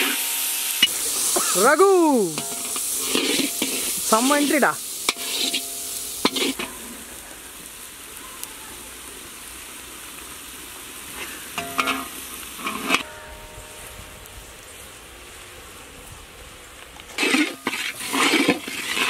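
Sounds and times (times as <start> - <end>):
tomatoes sizzling in a pan: 0.0 - 19.0
metal ladle clanking against pan: 2.3 - 3.8, 5.1 - 6.7, 11.6 - 13.2.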